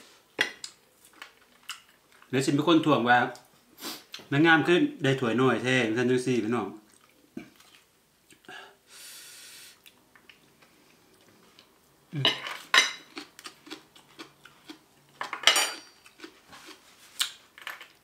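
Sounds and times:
cutlery clinking on a plate: 0:15.2 - 0:16.0.

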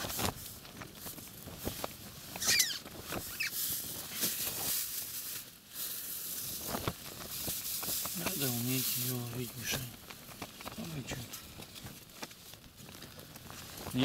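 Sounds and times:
clothing rustling: 0:00.0 - 0:14.0
high squeaks: 0:02.4 - 0:03.6.

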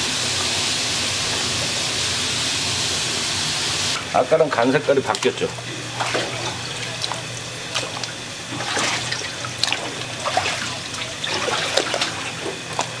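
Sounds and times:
steady low hum: 0:00.2 - 0:13.0
water trickling and splashing: 0:05.0 - 0:13.0.

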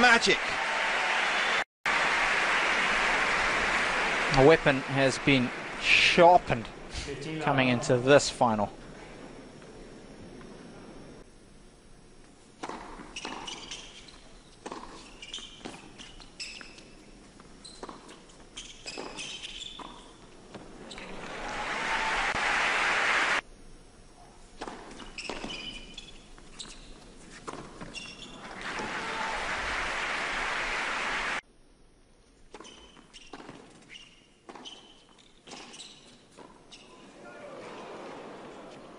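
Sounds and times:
crowd applause: 0:00.0 - 0:06.6, 0:21.0 - 0:23.4, 0:28.5 - 0:31.4
tennis ball bouncing on hard court: 0:12.6 - 0:13.8.

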